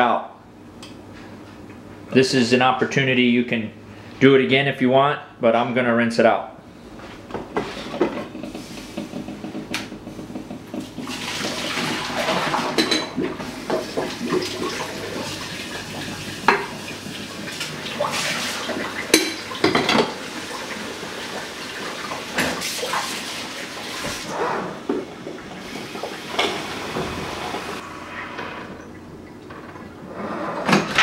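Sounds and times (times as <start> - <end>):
water running from a tap: 10.9 - 24.3, 25.1 - 27.8.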